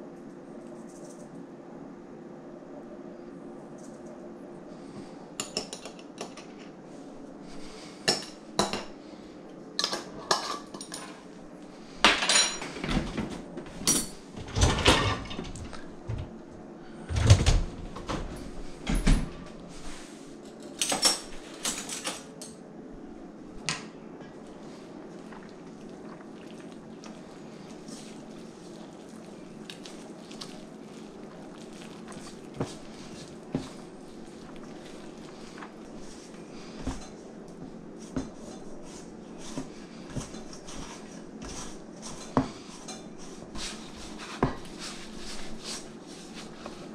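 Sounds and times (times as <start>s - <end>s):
faint steady hum: 0.0s - 46.9s
metal bowls and utensils clinking: 9.8s - 11.2s.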